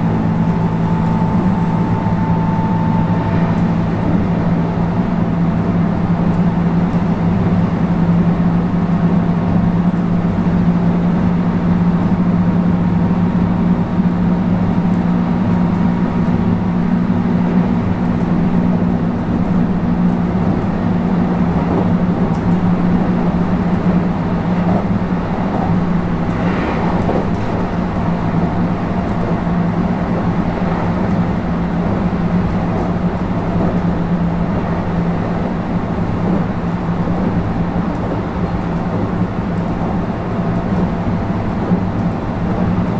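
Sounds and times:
traction motors humming: 0:00.0 - 0:05.8
wheel and rail noise: 0:00.0 - 0:42.9.

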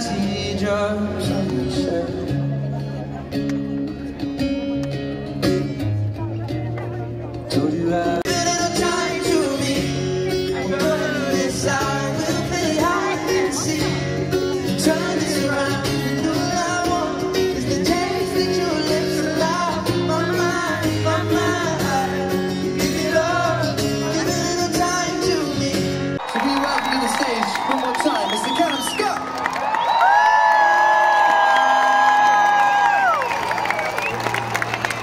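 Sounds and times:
man singing with guitar: 0:00.0 - 0:26.2
fans singing along: 0:07.8 - 0:26.1.

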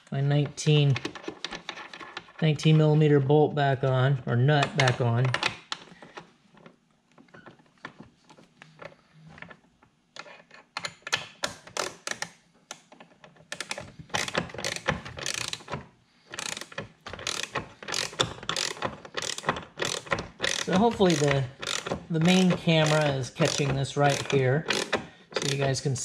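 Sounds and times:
socket ratchet clicking: 0:10.8 - 0:12.4, 0:13.5 - 0:25.8.

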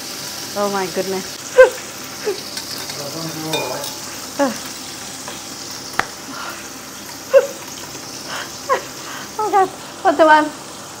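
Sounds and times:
oil sizzling in a pan: 0:00.0 - 0:11.0
utensil stirring in glass jug: 0:03.5 - 0:04.2.

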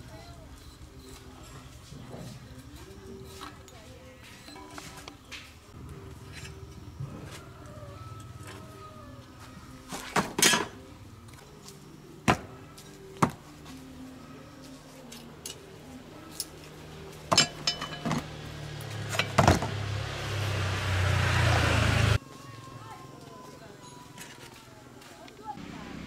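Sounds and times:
metal tools clinking: 0:10.3 - 0:10.8, 0:14.6 - 0:19.6.

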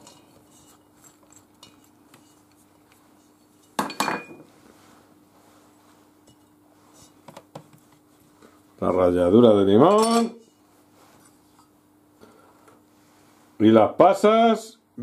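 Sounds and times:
dish clinking against metal bowl: 0:03.6 - 0:04.4, 0:09.9 - 0:10.5.

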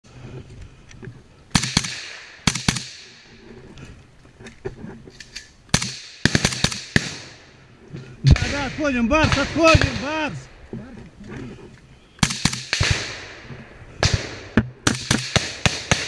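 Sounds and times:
echoing gunshots: 0:01.5 - 0:03.2, 0:05.7 - 0:07.6, 0:08.2 - 0:10.6, 0:12.2 - 0:16.0.

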